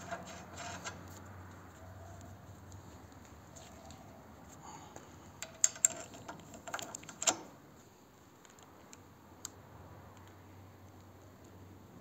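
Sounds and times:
metal chain clinking against nut: 5.4 - 7.5.

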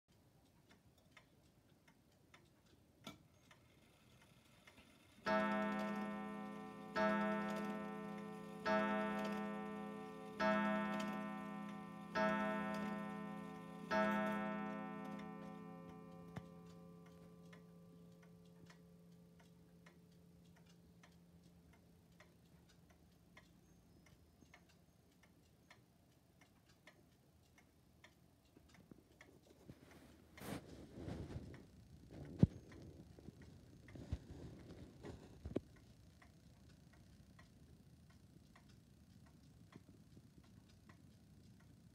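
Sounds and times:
wall clock ticking: 0.1 - 41.9
clock striking the hour: 4.7 - 22.3.

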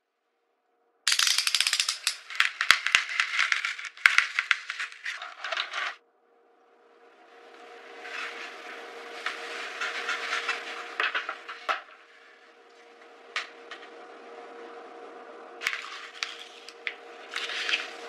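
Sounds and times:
paper wrapping crackling and rustling: 1.9 - 6.0, 15.6 - 18.0.

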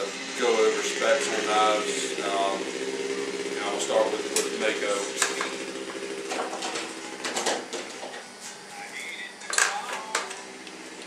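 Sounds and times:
clicks and knocks of objects: 6.3 - 8.2.

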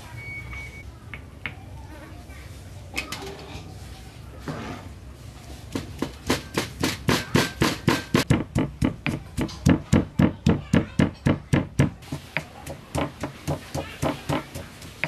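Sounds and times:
stone pestle pounding in mortar: 5.7 - 15.0.

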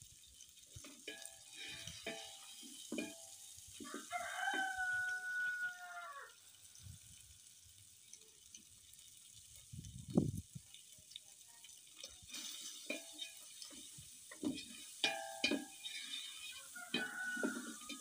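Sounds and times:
rooster crowing: 3.8 - 6.4, 16.4 - 18.0.

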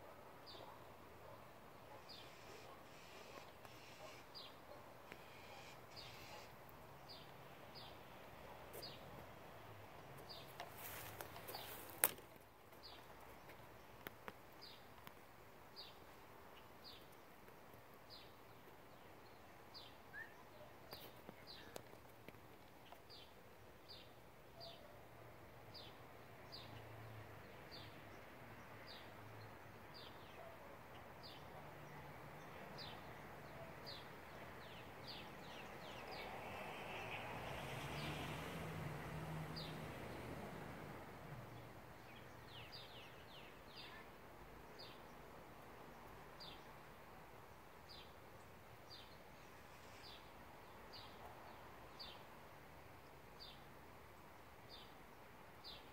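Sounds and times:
small bird chirping: 5.0 - 6.5.

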